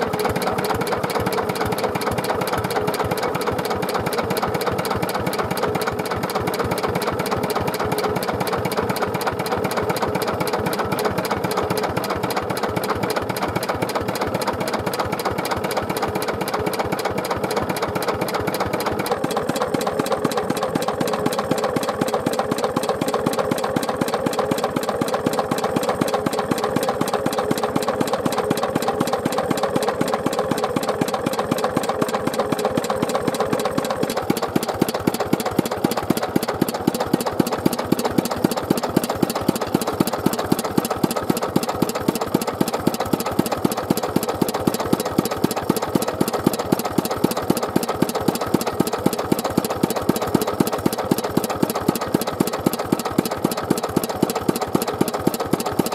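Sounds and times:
stationary engine running: 0.0 - 55.9.

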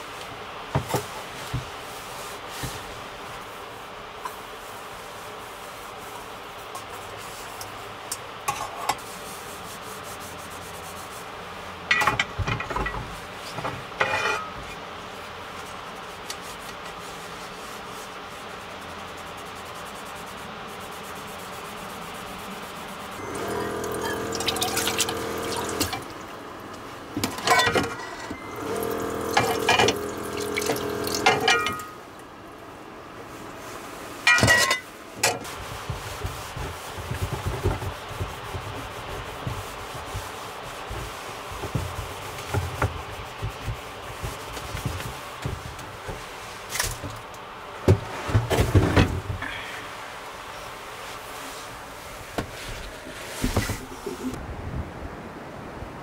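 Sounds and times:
steady background hiss: 0.0 - 56.0
metal cookware rubbing and scraping: 14.0 - 14.6, 23.2 - 26.2, 27.2 - 32.0
metal cups and lids clinking: 23.3 - 26.1, 27.3 - 31.9, 34.3 - 34.8.

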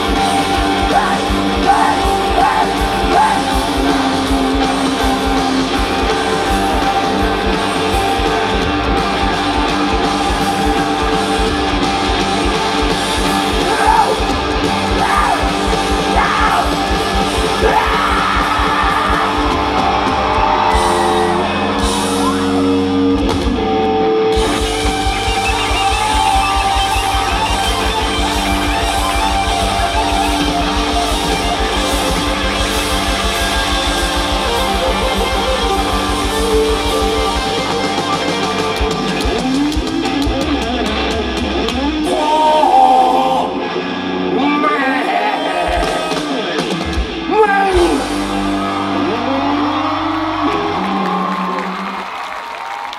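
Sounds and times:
live rock band playing: 0.0 - 52.7
person singing: 0.2 - 4.4, 13.5 - 19.8, 42.0 - 43.6.

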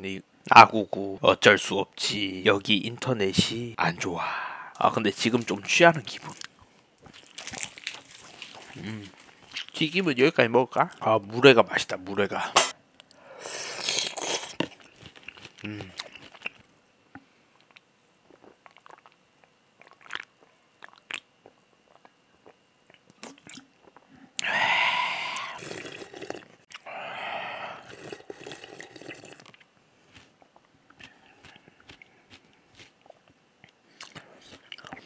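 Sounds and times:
slurping noodles and broth: 13.4 - 14.7, 24.4 - 26.4, 27.5 - 29.5
quiet chewing with mouth clicks: 14.4 - 24.5, 27.9 - 35.0.

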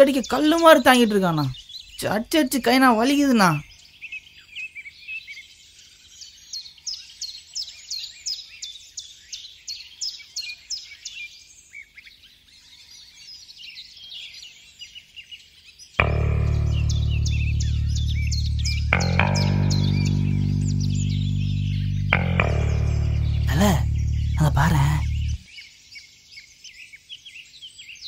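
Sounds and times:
birds chirping: 0.0 - 3.7, 16.0 - 25.4
loud bass-heavy music: 16.0 - 25.4.

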